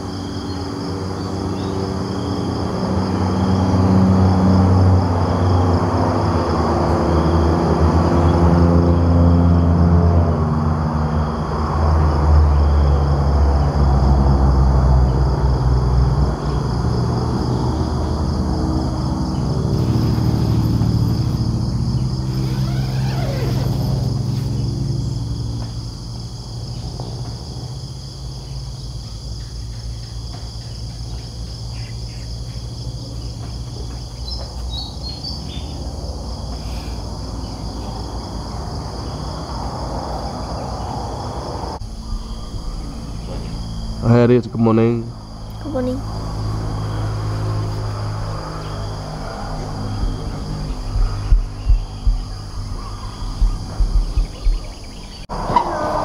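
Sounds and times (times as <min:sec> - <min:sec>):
insects chirping: 0:00.0 - 0:56.0
vehicle engine running: 0:13.7 - 0:27.7, 0:41.8 - 0:56.0.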